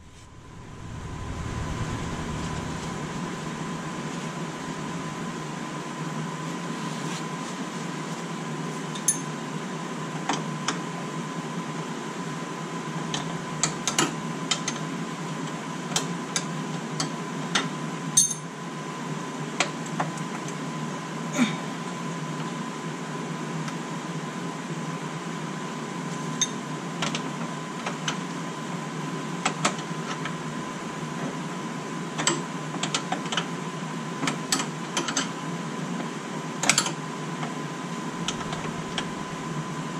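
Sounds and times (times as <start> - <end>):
steady hum with high tone: 0.0 - 9.7, 28.5 - 32.2, 35.4 - 39.9.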